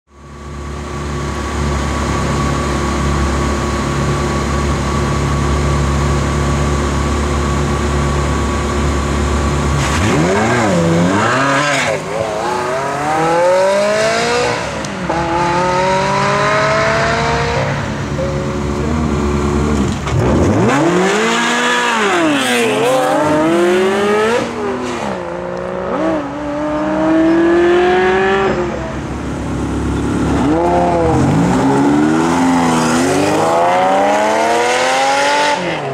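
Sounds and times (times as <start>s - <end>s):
car engine accelerating through gears: 9.2s - 35.9s.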